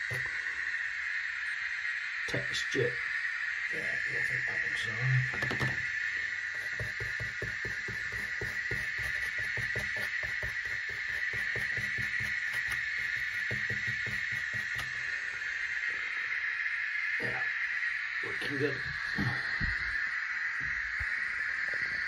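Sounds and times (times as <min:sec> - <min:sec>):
steady high-pitched hum: 0:00.0 - 0:22.0
paintbrush dabbing and scrubbing: 0:06.5 - 0:15.1.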